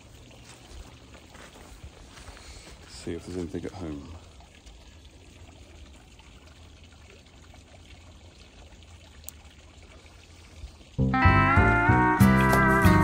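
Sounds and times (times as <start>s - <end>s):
water trickling: 0.0s - 11.8s
loud guitar music: 11.0s - 13.0s.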